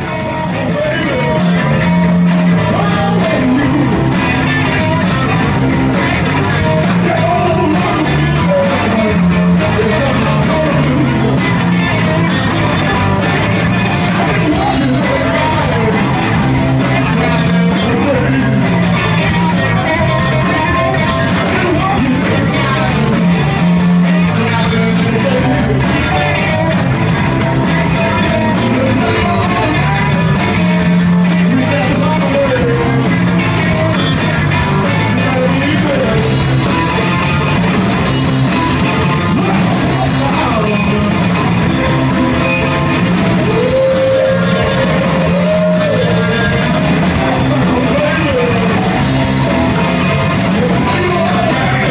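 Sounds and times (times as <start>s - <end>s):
live band playing loud music: 0.0s - 51.9s.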